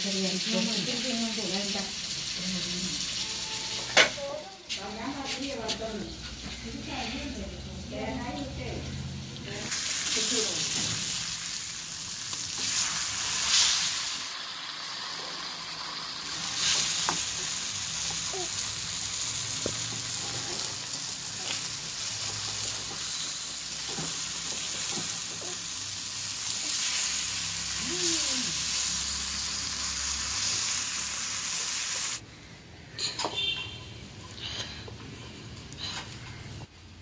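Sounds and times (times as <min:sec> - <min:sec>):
fish sizzling in oil: 0:00.0 - 0:05.2, 0:09.6 - 0:32.2.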